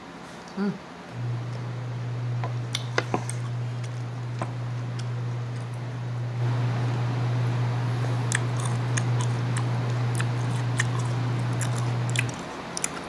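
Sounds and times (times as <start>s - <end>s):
steady low hum: 0.0s - 13.0s
crunchy chewing: 2.7s - 5.7s, 8.2s - 13.0s.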